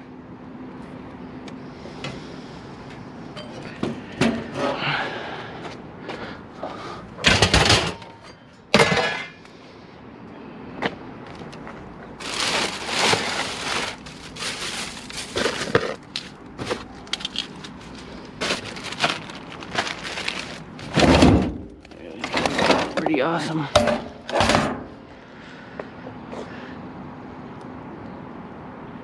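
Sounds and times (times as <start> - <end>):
plastic bags rustling: 11.4 - 23.1.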